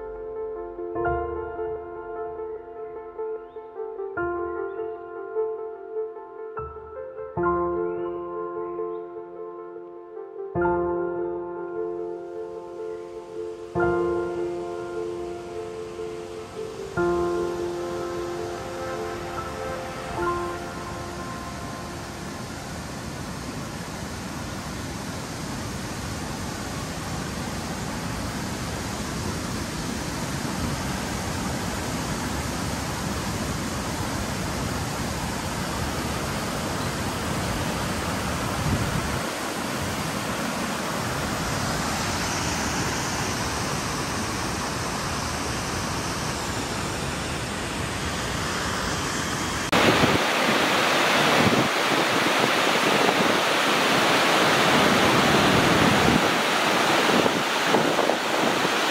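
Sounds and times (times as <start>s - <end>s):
rushing water: 12.5s - 58.9s
steady rushing noise: 13.1s - 58.9s.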